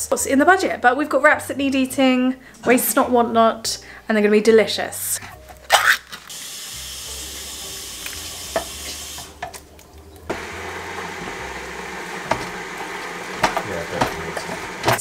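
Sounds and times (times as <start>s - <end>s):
wooden spoon stirring chilli: 10.0s - 15.0s
spoon knocking: 10.3s - 15.0s.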